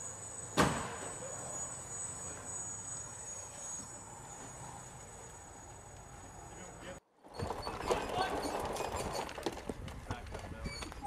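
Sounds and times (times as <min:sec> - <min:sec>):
sharp knock: 0:00.6 - 0:01.1.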